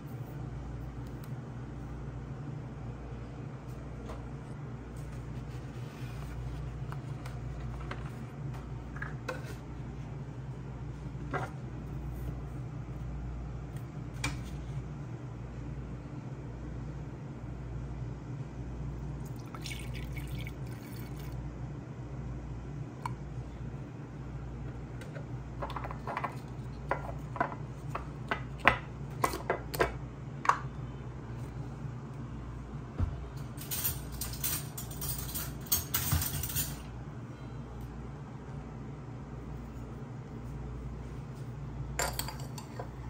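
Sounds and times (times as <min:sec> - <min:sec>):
steady low hum: 0:00.0 - 0:43.0
milk glugging and splashing: 0:19.3 - 0:21.4
clinks and rustling: 0:33.6 - 0:36.9.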